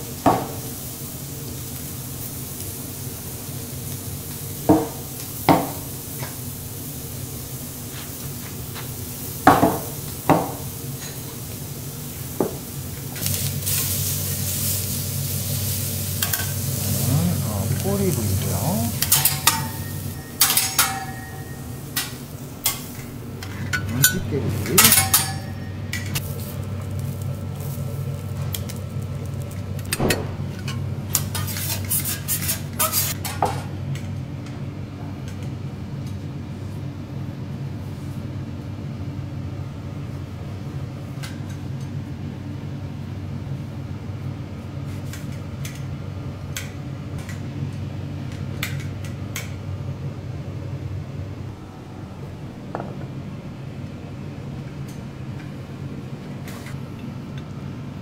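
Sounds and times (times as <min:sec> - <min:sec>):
ventilation hood hum: 0:00.0 - 0:58.0
plates and utensils clinking: 0:18.4 - 0:26.2.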